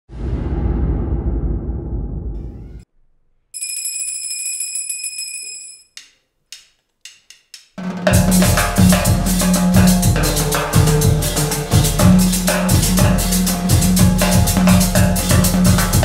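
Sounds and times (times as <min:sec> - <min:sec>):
whooshing sound effect: 0:00.0 - 0:02.8
high ringing tone: 0:03.6 - 0:06.0
panpipes with drums and cymbals: 0:08.0 - 0:16.0.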